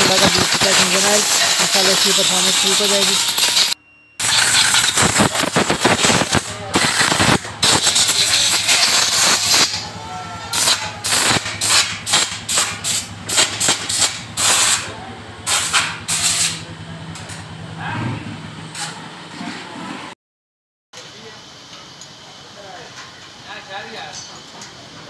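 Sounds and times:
compressed air blow gun blasts: 0:00.0 - 0:09.8, 0:10.5 - 0:14.9, 0:15.5 - 0:16.6.

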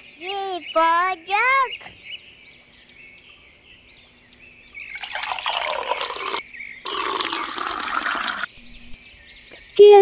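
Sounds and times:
juice pouring into a glass: 0:04.8 - 0:08.5.

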